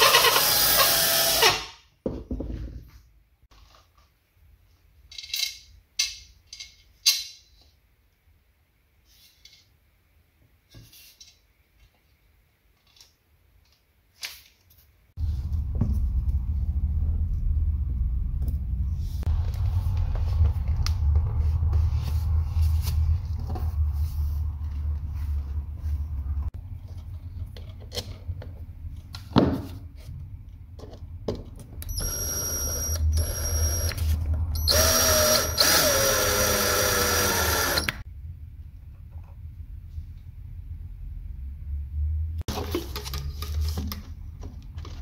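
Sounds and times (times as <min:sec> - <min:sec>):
steady low rumble: 0:15.2 - 0:27.0.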